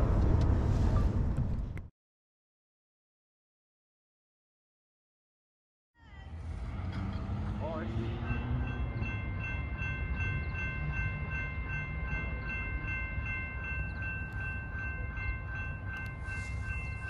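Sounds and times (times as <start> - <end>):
low rumble: 0.0 - 1.9
crossing bell ringing: 7.0 - 17.0.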